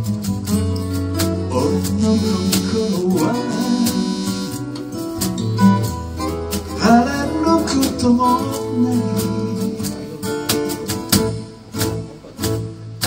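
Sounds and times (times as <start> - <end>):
acoustic guitar: 0.0 - 13.0
man singing: 1.5 - 4.6, 6.8 - 10.8.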